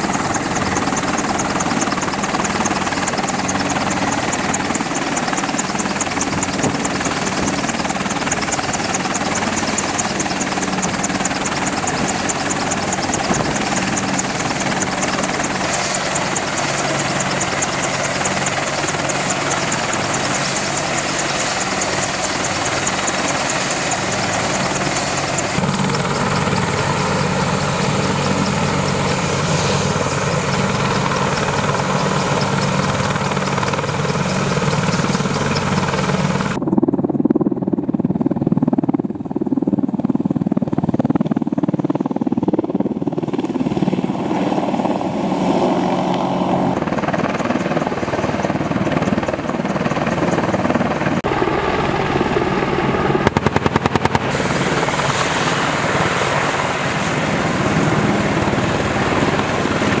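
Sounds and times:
helicopter engines and rotor: 0.0 - 60.0
rapid burst of sharp bangs: 53.2 - 56.0.

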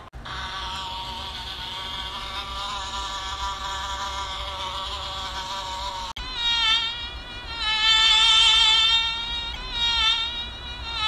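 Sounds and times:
insect wings buzzing: 0.0 - 11.0.

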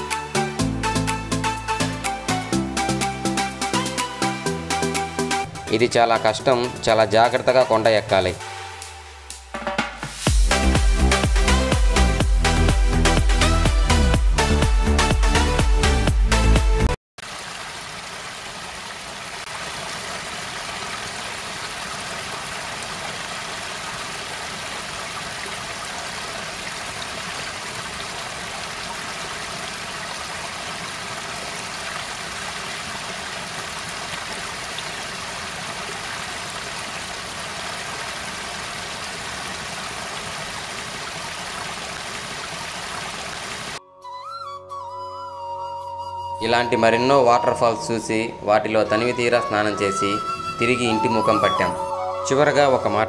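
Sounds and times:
waterfall rushing into a pool: 17.2 - 43.8.

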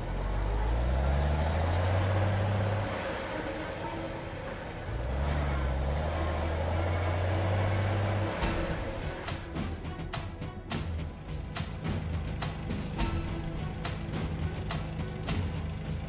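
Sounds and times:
fire truck engine accelerating: 0.0 - 10.2, 10.8 - 16.0.

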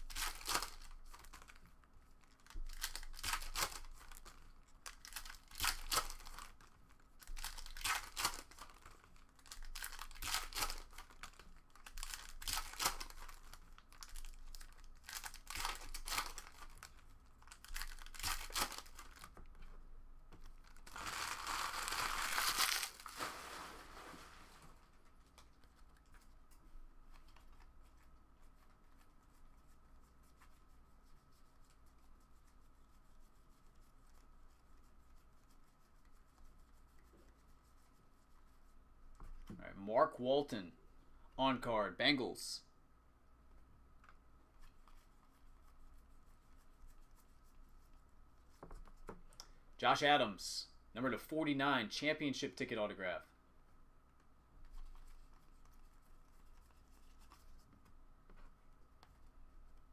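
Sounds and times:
cards rustling: 0.0 - 1.6, 2.2 - 19.5, 20.4 - 23.6
foil wrappers crinkling and tearing: 0.0 - 1.6, 2.2 - 19.3, 20.5 - 23.9
wrapper crumpling: 0.0 - 1.6, 2.2 - 19.3, 20.6 - 23.7.

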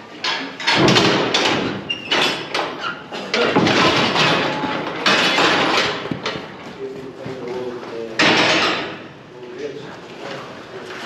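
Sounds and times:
steel gates clanging and rattling: 0.2 - 6.7, 8.2 - 9.2.

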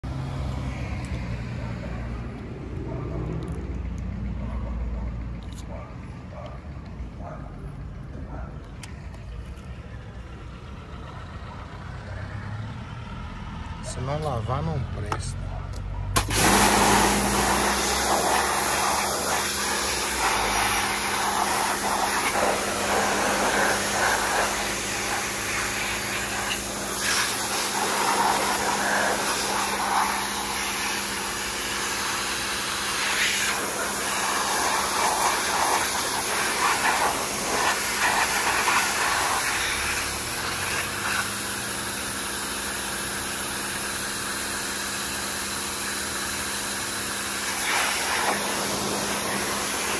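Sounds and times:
pressure washer motor hum: 16.2 - 49.9
water jet hissing: 16.2 - 49.9.

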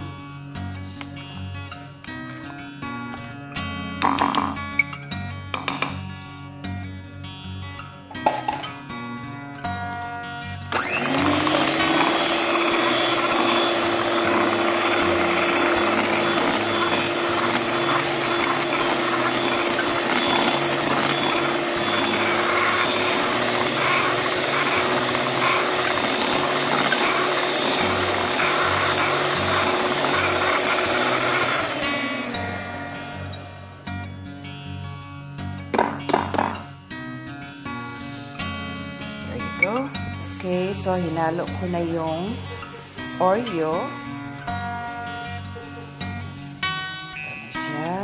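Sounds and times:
electric hand mixer whining: 10.7 - 34.2, 39.4 - 48.0.

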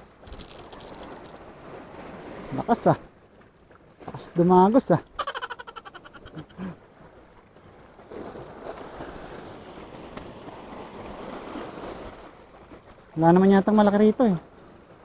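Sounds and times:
sea water washing over pebbly shore: 0.0 - 2.8.

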